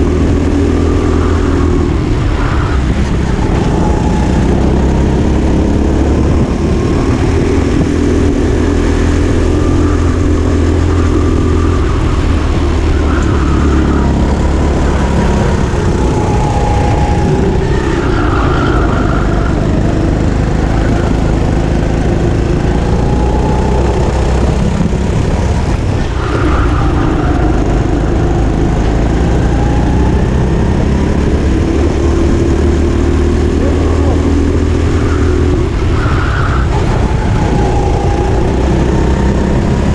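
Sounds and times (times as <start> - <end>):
go-kart engine revving: 0.0 - 39.9.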